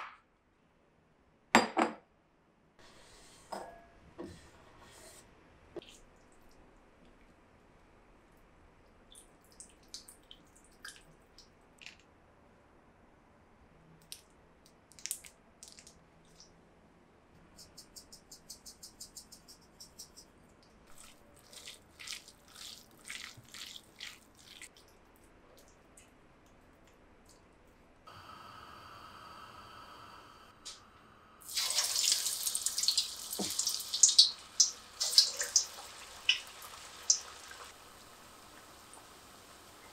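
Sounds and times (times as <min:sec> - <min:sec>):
frying oil sizzling: 0:31.4 - 0:39.9.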